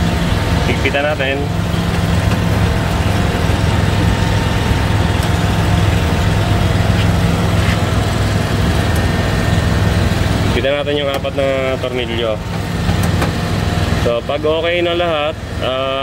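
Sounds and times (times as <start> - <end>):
broad rushing noise: 0.0 - 10.9
machinery hum with tones: 0.0 - 16.0.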